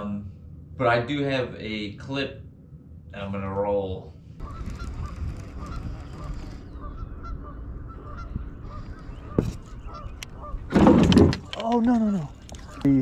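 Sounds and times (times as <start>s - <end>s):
steady low rumble: 0.0s - 10.7s
geese honking: 4.4s - 10.8s.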